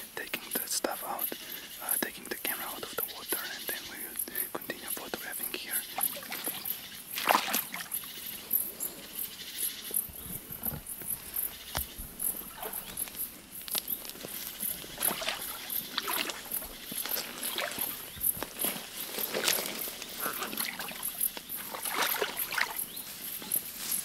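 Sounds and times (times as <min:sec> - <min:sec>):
twigs and leaves rustling: 0:00.4 - 0:24.0
footsteps in waders out of water: 0:06.0 - 0:08.0, 0:11.4 - 0:23.7.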